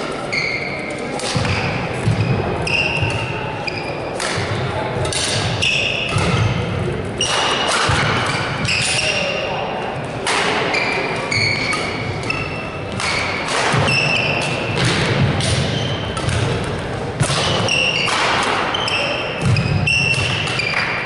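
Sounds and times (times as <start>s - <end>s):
rackets hitting shuttlecock: 1.0s - 3.5s, 4.1s - 9.4s, 10.0s - 21.0s
shoes squeaking on wooden floor: 10.7s - 14.3s.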